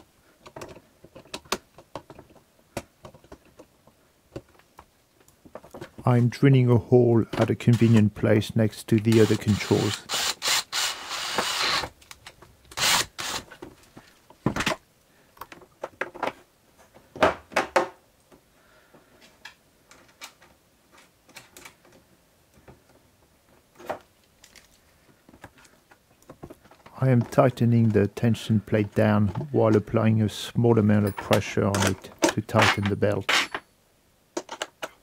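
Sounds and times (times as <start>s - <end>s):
cordless drill boring: 9.3s - 11.9s, 12.8s - 13.4s
clicks and knocks of handled tools: 31.0s - 33.7s, 34.4s - 35.0s.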